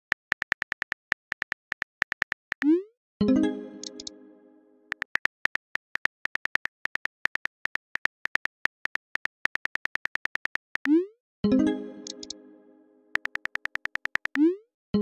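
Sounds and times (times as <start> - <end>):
keyboard typing clicks: 0.0 - 2.7, 3.8 - 4.2, 4.9 - 11.0, 12.0 - 12.4, 13.1 - 14.5.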